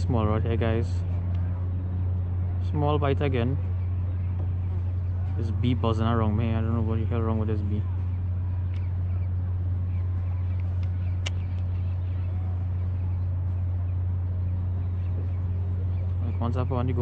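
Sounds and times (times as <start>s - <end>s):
steady low hum: 0.0s - 17.0s
sharp click: 10.5s - 11.8s.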